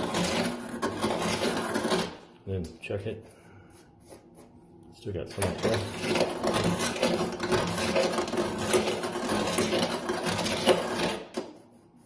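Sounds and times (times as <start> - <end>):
deburring tool scraping metal: 0.0 - 2.2, 5.3 - 11.5.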